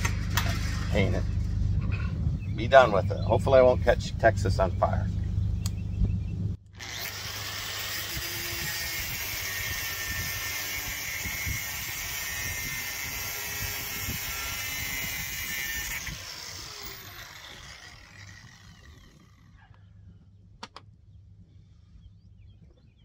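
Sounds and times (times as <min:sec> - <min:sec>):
angle grinder cutting steel: 0:06.7 - 0:19.4
grinder disc spinning down: 0:06.7 - 0:19.5.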